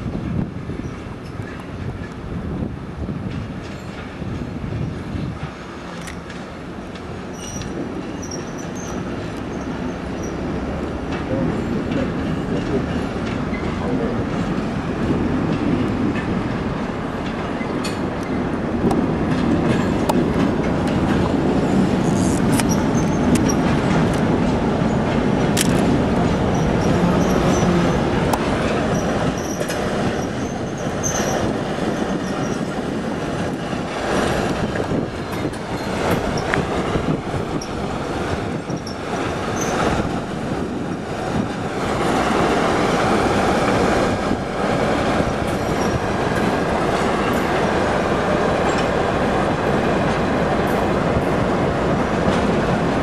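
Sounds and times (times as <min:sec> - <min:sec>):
diesel locomotive rumble: 0:00.0 - 0:53.0
wheels clicking over rail joints: 0:05.3 - 0:53.0
wheels squealing on rails: 0:05.4 - 0:14.7, 0:20.9 - 0:24.2, 0:24.8 - 0:53.0.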